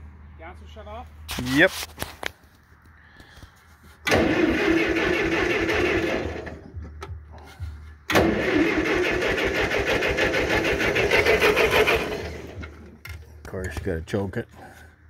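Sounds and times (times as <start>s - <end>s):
tractor engine cranking: 3.9s - 14.0s.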